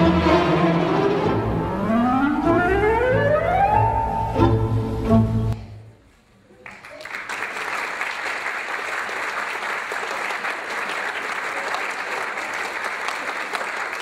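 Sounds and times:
instrumental music: 0.0s - 5.6s
audience applause: 6.6s - 14.0s.

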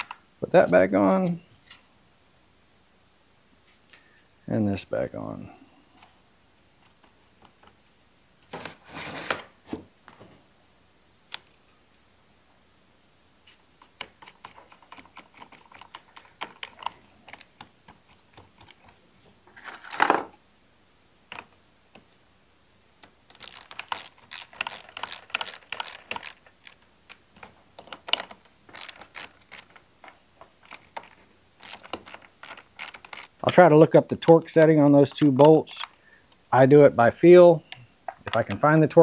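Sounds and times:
parts and plastic rustling: 13.4s - 20.4s, 23.2s - 33.6s
socket ratchet clicking: 23.0s - 26.8s, 27.8s - 29.8s, 31.6s - 33.4s.

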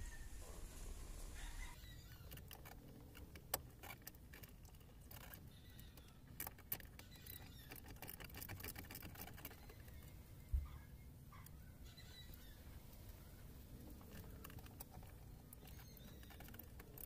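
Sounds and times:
small clicks and rustling of hands: 2.1s - 10.2s, 12.9s - 17.0s.

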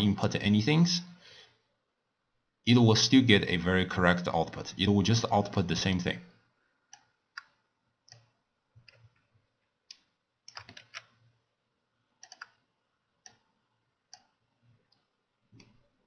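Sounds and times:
computer mouse clicks: 6.9s - 11.3s, 12.2s - 13.5s, 14.1s - 15.8s.

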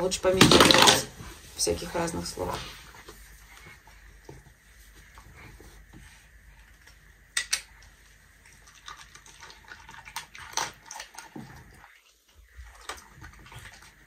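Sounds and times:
dog crunching dry food: 8.5s - 12.0s.

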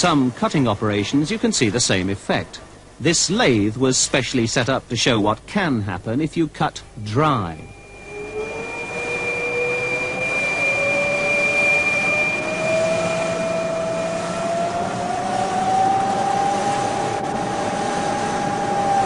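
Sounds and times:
thin high tone: 6.4s - 17.2s
lathe grinding with rising whine: 6.8s - 19.0s.

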